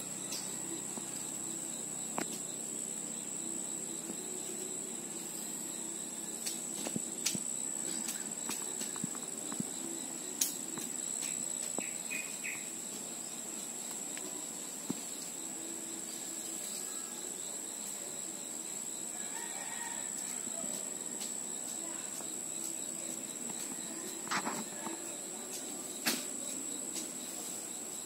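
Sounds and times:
insects trilling: 0.0s - 28.0s.

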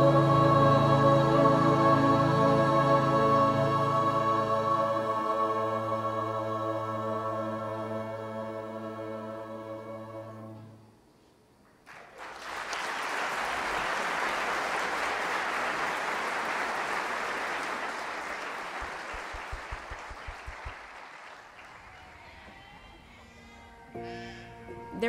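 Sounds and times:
held music chord: 0.0s - 10.8s
audience applause: 11.8s - 22.3s
low thumps: 18.8s - 21.0s.

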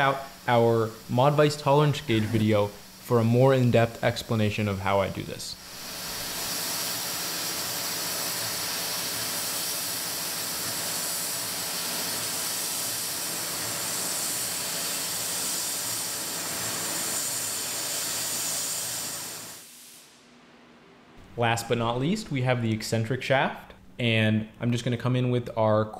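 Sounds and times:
air nozzle hissing: 0.0s - 3.7s, 5.5s - 20.2s.

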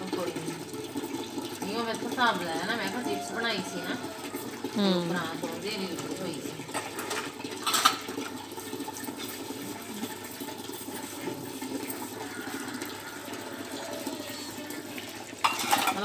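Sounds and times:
dishes being washed by hand: 0.0s - 16.0s
water running: 0.0s - 16.0s
metal utensil clatter: 6.7s - 8.4s, 15.4s - 16.0s.

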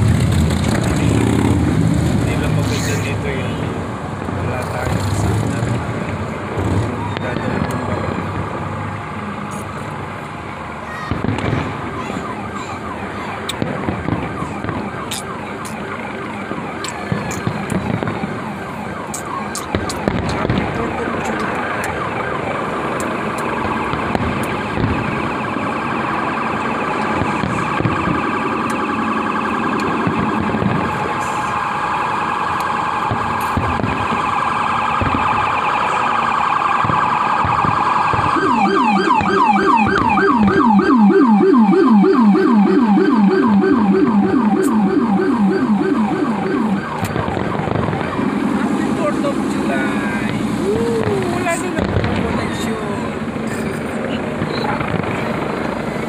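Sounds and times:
emergency siren wailing and yelping: 0.1s - 56.0s
faint fireworks pops: 4.2s - 8.6s, 10.9s - 31.7s, 32.5s - 36.1s, 36.7s - 40.7s, 46.4s - 56.0s.

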